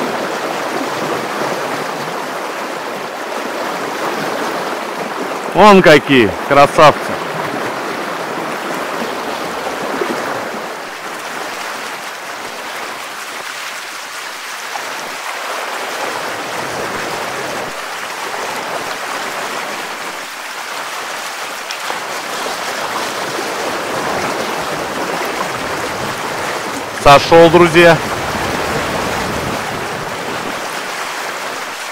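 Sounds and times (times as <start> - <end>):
river water rushing: 0.0 - 31.9.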